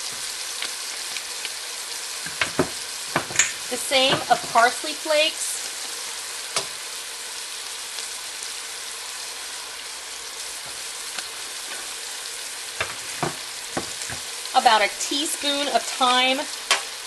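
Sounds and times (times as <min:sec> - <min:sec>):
onion and garlic sizzling in oil: 0:00.0 - 0:17.0
knocks on a pot: 0:02.3 - 0:04.3, 0:12.8 - 0:14.3.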